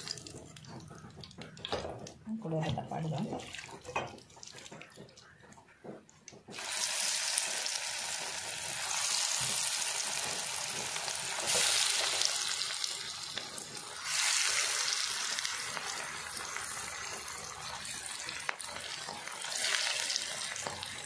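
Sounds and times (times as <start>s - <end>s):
chicken deep-frying in oil: 0.0s - 1.6s, 6.4s - 21.0s.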